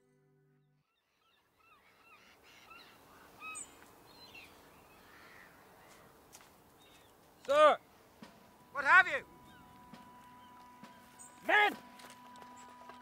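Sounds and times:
music: 0.0 - 0.8, 8.2 - 13.0
faint outdoor ambience: 0.0 - 13.0
short bird calls: 0.9 - 6.1.

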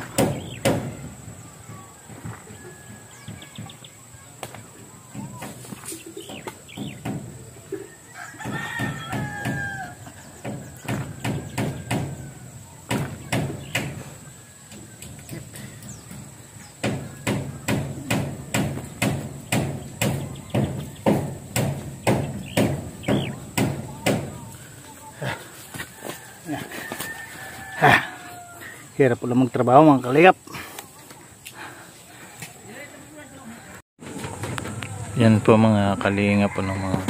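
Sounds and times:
rooster crowing: 1.6 - 3.6, 7.5 - 12.9, 23.2 - 29.0, 36.0 - 37.0.

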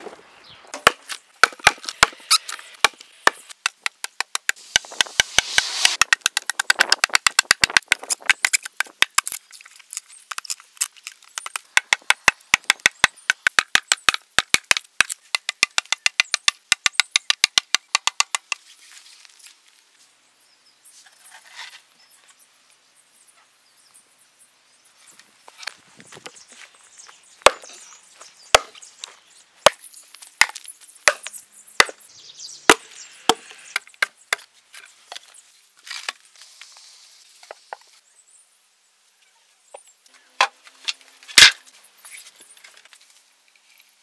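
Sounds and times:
rotten wood scraping and crackling: 7.6 - 11.7.

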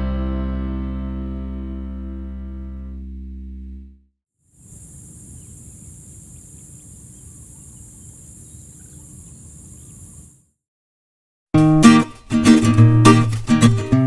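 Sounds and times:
insects trilling: 4.5 - 10.4
faint bird calls: 4.6 - 10.4.

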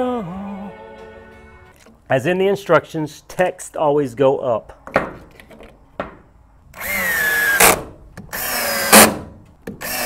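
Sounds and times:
cordless drill whining: 6.8 - 9.2, 9.8 - 10.0.

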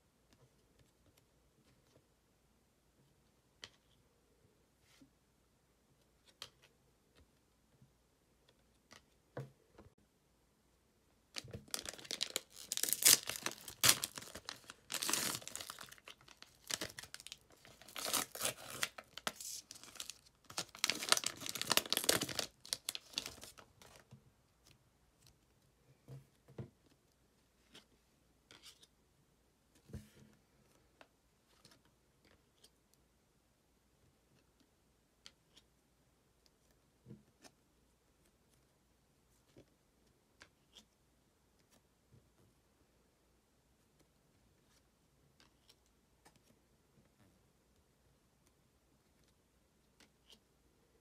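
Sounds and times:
wrapper tearing and crinkling: 11.4 - 24.0.

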